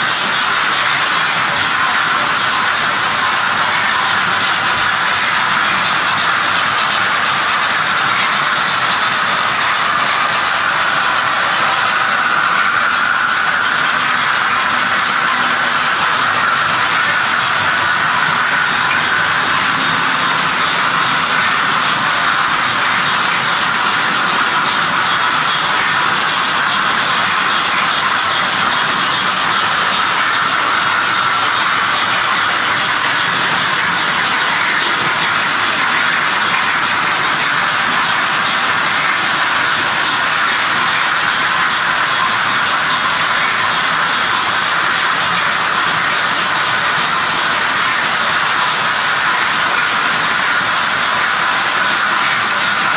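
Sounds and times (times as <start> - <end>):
model trains rolling on track: 0.0 - 52.9.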